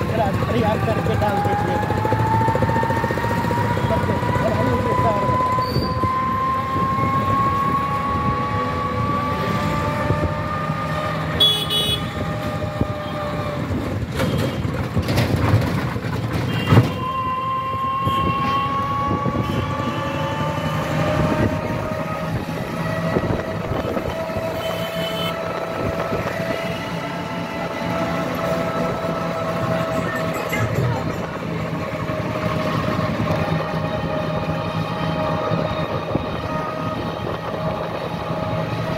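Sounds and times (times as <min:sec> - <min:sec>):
road rumble: 0:00.0 - 0:38.9
rattles and clicks: 0:13.8 - 0:17.0.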